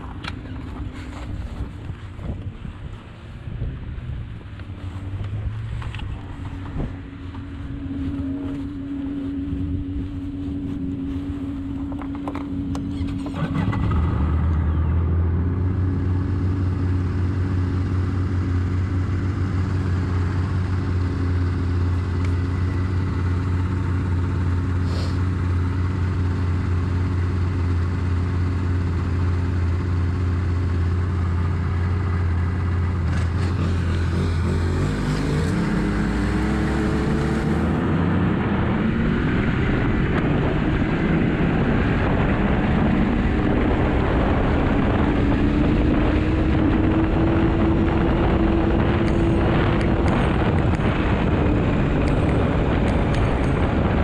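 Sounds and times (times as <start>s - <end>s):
snowmobile engine idling and revving: 0.0s - 54.0s.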